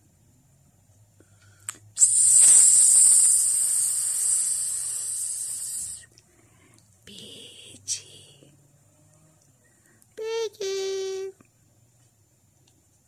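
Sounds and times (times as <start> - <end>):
loud steady hiss: 1.7 - 6.1.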